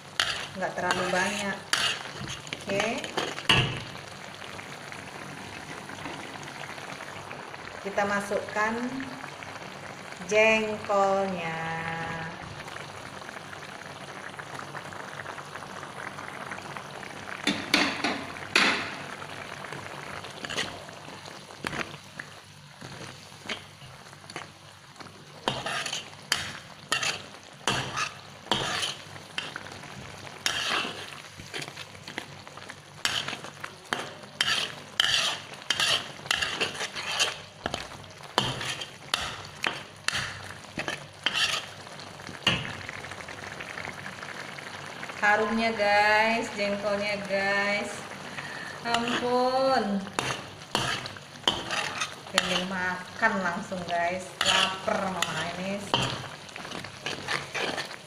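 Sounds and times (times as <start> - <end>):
metal spatula scraping a pan: 0.0 - 3.7, 20.4 - 20.8, 25.4 - 29.6, 30.4 - 31.8, 33.0 - 41.8, 48.8 - 58.0
sauce sizzling: 0.0 - 58.0.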